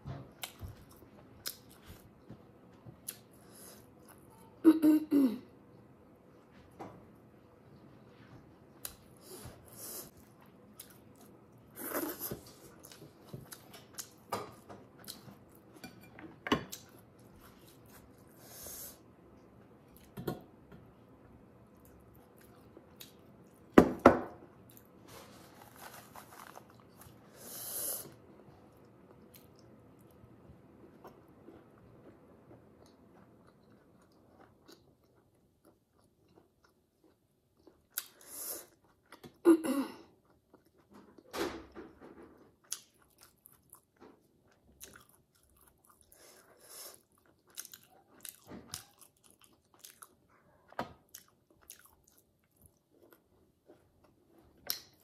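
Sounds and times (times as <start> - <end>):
person chewing food: 0.3 - 4.2, 8.8 - 15.7, 30.9 - 39.4, 40.1 - 41.3, 42.5 - 55.0.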